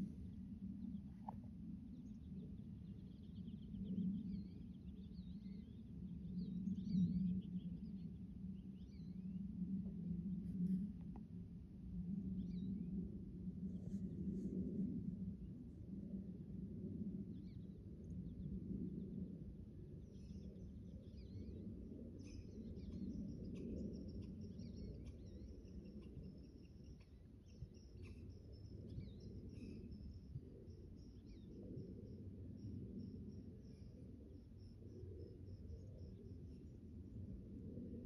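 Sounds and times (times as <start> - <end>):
faint small bird chirps: 22.2 - 34.0.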